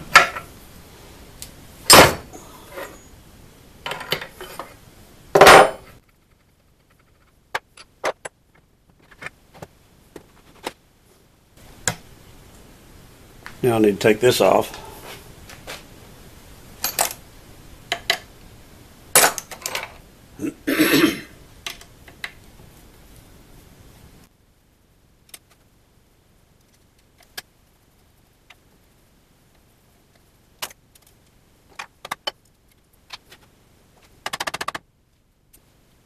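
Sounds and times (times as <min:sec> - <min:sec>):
metal tools clinking: 0:16.8 - 0:17.2.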